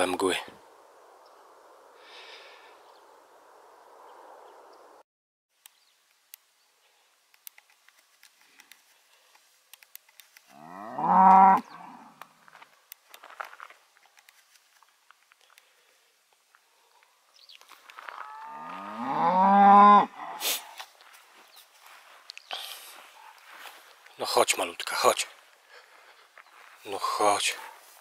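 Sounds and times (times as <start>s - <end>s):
faint clicks: 7.3s - 10.6s
cow mooing: 10.5s - 12.2s, 18.2s - 20.4s.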